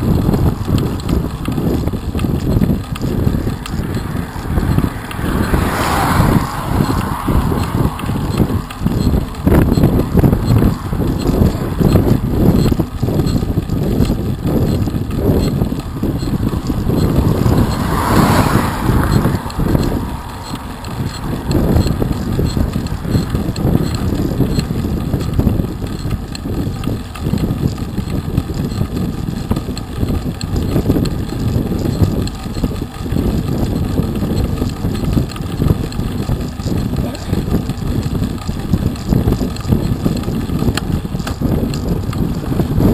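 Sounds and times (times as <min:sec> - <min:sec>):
bicycle tyres rumbling on tarmac: 0:00.0 - 0:42.9
wind buffeting microphone: 0:00.0 - 0:42.9.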